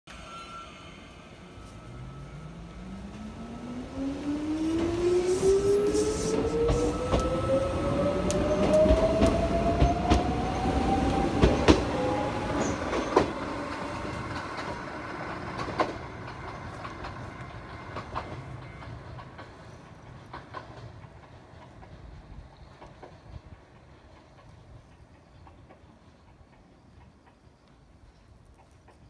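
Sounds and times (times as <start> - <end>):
electric train motor whine: 0.5 - 12.8
wheels clicking over rail joints: 6.4 - 29.0.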